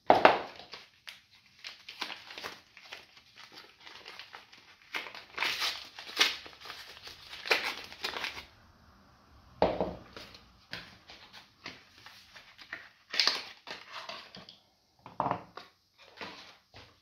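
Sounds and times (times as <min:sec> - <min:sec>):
wrapper crinkling: 0:00.5 - 0:08.5, 0:10.1 - 0:14.3.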